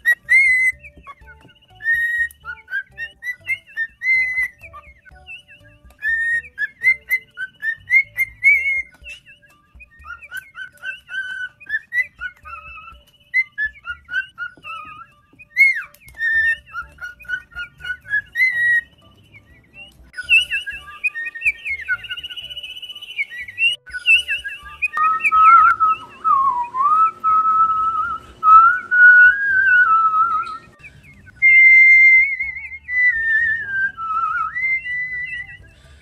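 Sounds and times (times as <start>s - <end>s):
cockatiel whistling a tune: 0.0s - 36.0s
chatter of many cockatiels: 15.6s - 18.9s.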